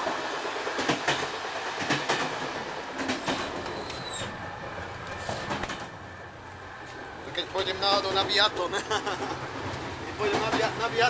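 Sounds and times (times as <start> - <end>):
wheels clacking and knocking: 0.0 - 4.3, 9.6 - 11.0
railway carriage rattling rumble: 0.0 - 11.0
high squeal: 3.6 - 6.3.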